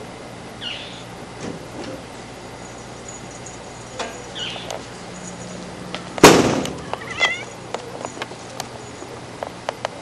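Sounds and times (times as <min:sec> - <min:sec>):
faint bird-like chirps: 0:00.6 - 0:01.1
loud bump: 0:06.2 - 0:06.9.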